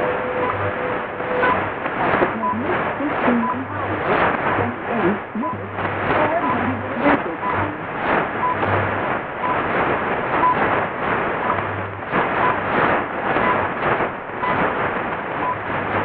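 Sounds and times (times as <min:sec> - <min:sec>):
low hum bursts: 0:00.0 - 0:16.0
radio static: 0:00.0 - 0:16.0.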